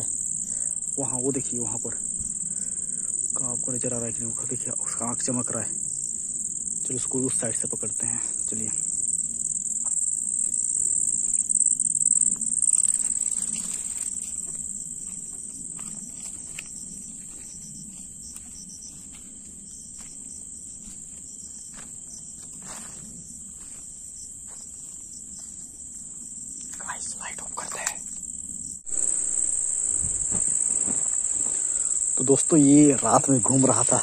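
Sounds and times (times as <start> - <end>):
crickets chirring: 0.0 - 34.0
light rustles and steps: 12.7 - 26.0, 29.0 - 31.9.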